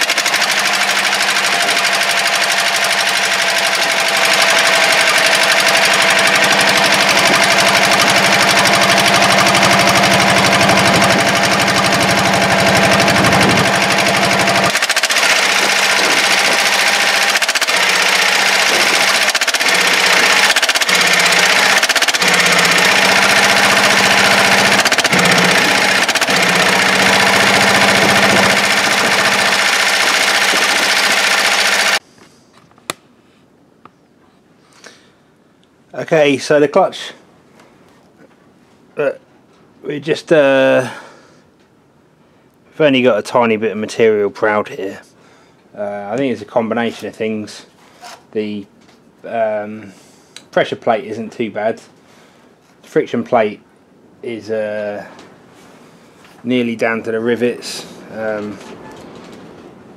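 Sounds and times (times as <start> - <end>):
diesel engine running: 0.0 - 32.0
repetitive engine knocking: 0.0 - 32.0.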